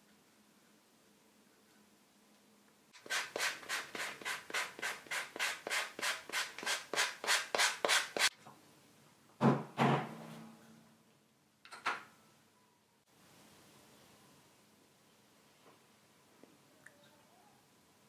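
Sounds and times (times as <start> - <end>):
sanding block on leather edge: 3.0 - 8.3.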